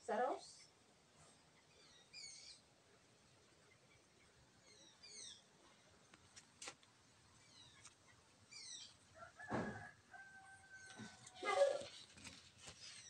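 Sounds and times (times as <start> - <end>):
small birds chirping: 0.0 - 13.0
animal call with held tones: 10.4 - 12.0.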